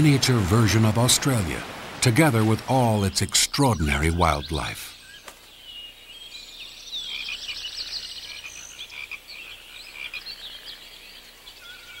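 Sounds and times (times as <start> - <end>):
frogs calling: 3.0 - 12.0.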